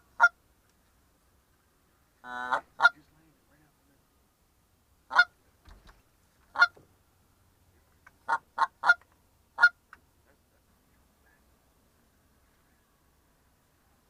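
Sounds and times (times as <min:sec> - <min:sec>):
goose call honks and clucks: 0:00.2 - 0:00.4, 0:02.2 - 0:03.1, 0:05.1 - 0:05.4, 0:06.5 - 0:06.8, 0:08.2 - 0:09.8.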